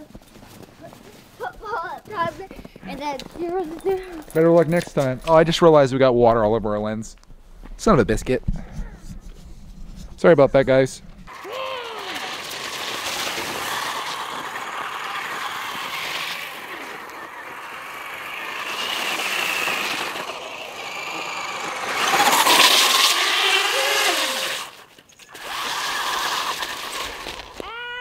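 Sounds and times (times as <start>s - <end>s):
tyres hissing on ice and snow: 10.7s - 27.9s
toy truck motor whining: 11.3s - 28.0s.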